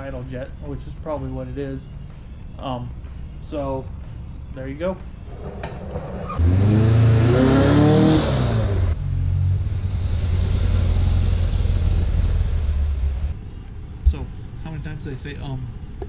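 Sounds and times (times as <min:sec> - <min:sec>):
engine rumble: 0:00.0 - 0:16.0
van engine accelerating past: 0:05.3 - 0:13.4.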